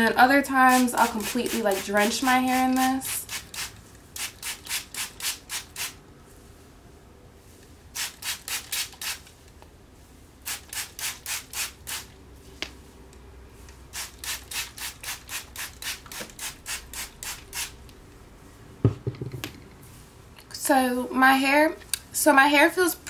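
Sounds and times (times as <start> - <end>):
spray bottle spritzing: 0.7 - 6.0, 8.0 - 9.3, 10.4 - 12.1, 13.9 - 17.8.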